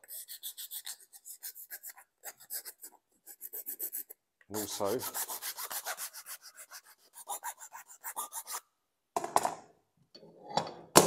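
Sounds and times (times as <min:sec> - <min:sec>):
file rasping on plastic pipe: 0:00.0 - 0:08.7.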